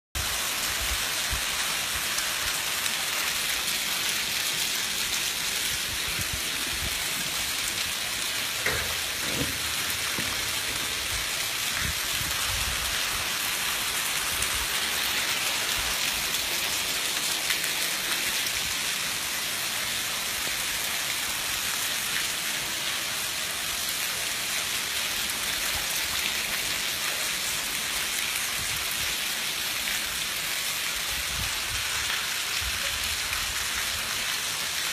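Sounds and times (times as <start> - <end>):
heavy rain on pavement: 0.2 - 34.9.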